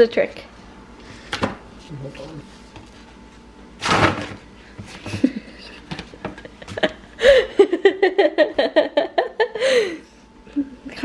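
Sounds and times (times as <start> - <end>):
person laughing: 5.0 - 10.9.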